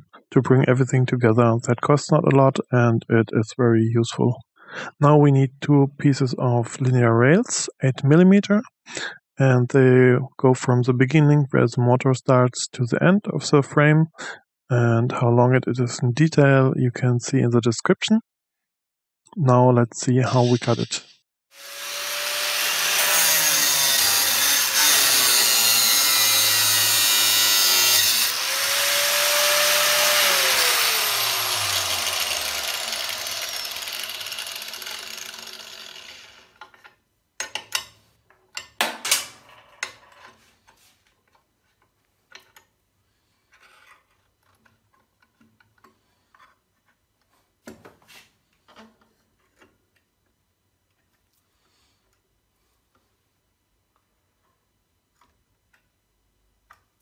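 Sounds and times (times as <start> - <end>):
angle grinder cutting steel: 21.6 - 36.6
grinder winding down whine: 21.6 - 36.6
clicks and knocks of metal rod: 36.6 - 42.7.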